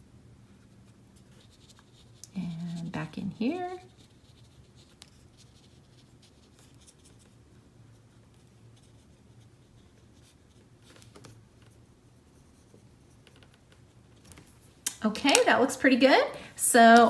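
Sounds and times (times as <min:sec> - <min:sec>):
low room hum: 0:00.0 - 0:17.0
brush scratching on paper: 0:00.5 - 0:11.0.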